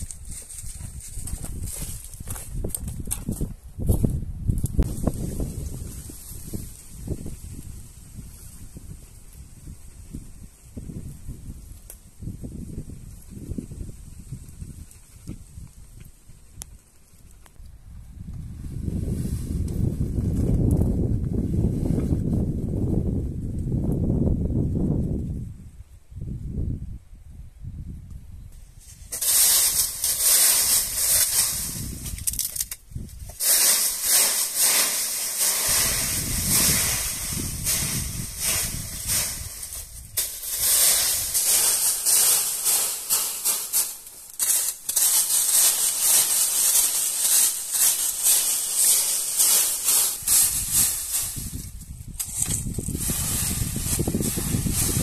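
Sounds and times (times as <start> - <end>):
stick raking dry leaves: 28.8 - 55.0.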